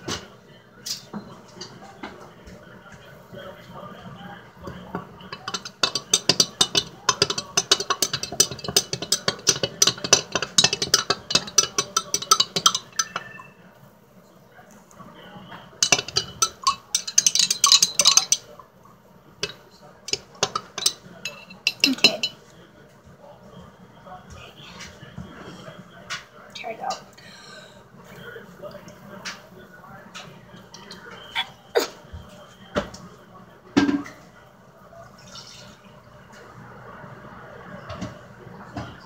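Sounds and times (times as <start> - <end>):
spoon clinking against glass jar: 5.3 - 13.5, 15.8 - 18.6, 19.4 - 22.4.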